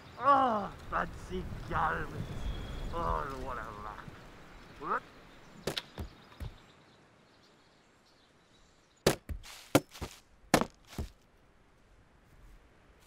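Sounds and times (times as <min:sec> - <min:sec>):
axe chopping wood: 0:05.6 - 0:06.6, 0:09.0 - 0:11.2
sharp wooden cracks and knocks: 0:05.6 - 0:06.6, 0:09.0 - 0:11.2.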